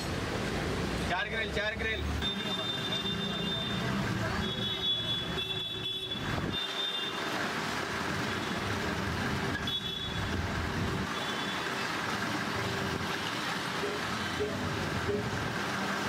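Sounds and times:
vehicle engines running: 0:07.2 - 0:16.0.

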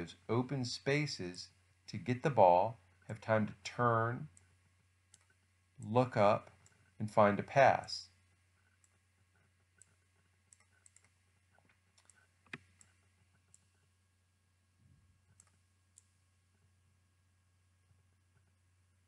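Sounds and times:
low steady hum: 0:00.0 - 0:19.0
computer mouse clicks: 0:05.1 - 0:05.4, 0:08.6 - 0:13.8, 0:15.3 - 0:16.1.

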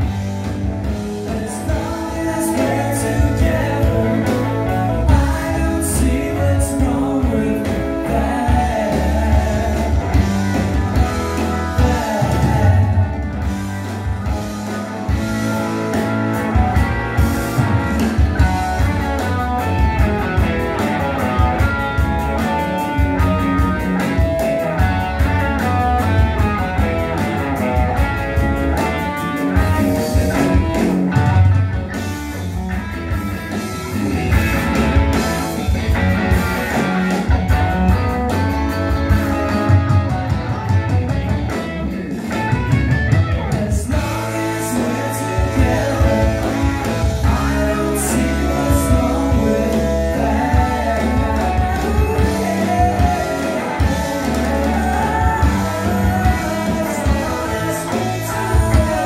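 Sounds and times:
bass guitar: 0:00.0 - 0:59.0
drums: 0:00.0 - 0:59.0
electric guitars: 0:00.0 - 0:59.0
person singing: 0:01.2 - 0:10.5, 0:11.3 - 0:13.2, 0:43.4 - 0:59.0.

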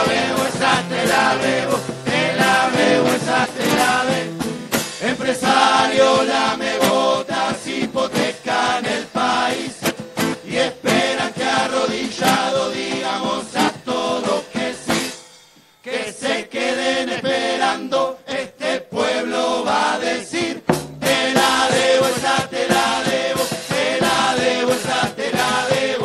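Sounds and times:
drum and cymbal hits: 0:00.0 - 0:08.4, 0:09.8 - 0:15.8, 0:20.3 - 0:26.0
choir singing chant-like refrain: 0:00.0 - 0:15.1, 0:15.8 - 0:26.0.

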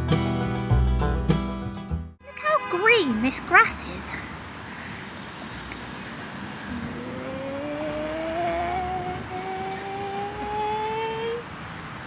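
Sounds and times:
vehicle engine accelerating: 0:05.3 - 0:11.5.

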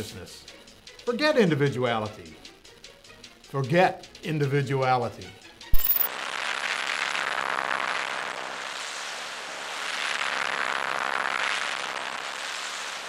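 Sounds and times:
electronic rushing noise: 0:05.8 - 0:06.1
faint held tones: 0:05.8 - 0:06.1.

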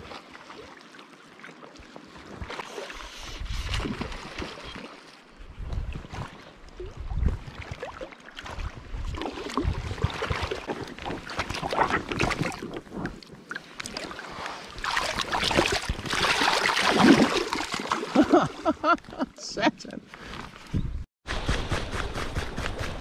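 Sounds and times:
river water splashing: 0:00.0 - 0:05.4, 0:06.0 - 0:19.2
wind rumble on microphone: 0:03.2 - 0:04.2, 0:05.4 - 0:07.8, 0:08.5 - 0:11.2, 0:20.7 - 0:23.0.

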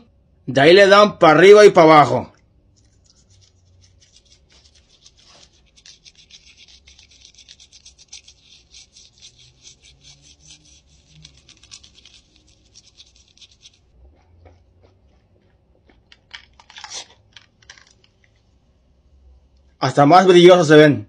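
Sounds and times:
toothbrush scrubbing: 0:02.7 - 0:15.4.

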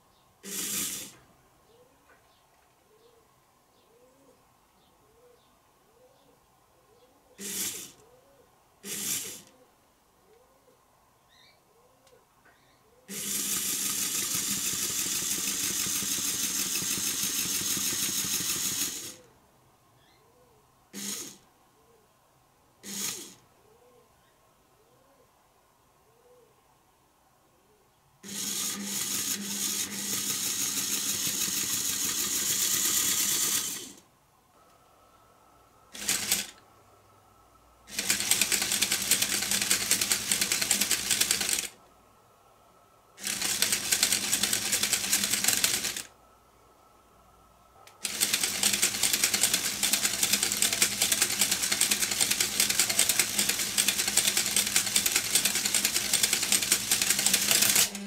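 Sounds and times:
electric motor hum: 0:00.4 - 0:01.2, 0:28.2 - 0:34.0
plastic gears rattling: 0:36.0 - 0:36.6, 0:37.9 - 0:41.8, 0:43.2 - 0:46.1, 0:48.0 - 0:58.0.

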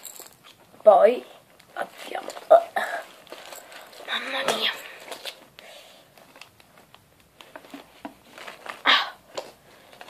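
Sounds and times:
rummaging in a bag: 0:01.9 - 0:05.5, 0:06.2 - 0:10.0.

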